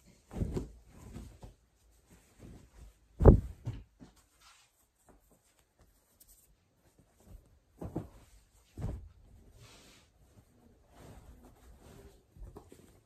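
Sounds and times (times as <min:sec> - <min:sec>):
fabric rustling: 0:00.0 - 0:13.0
towels thumping on table: 0:03.2 - 0:04.0, 0:07.8 - 0:09.2.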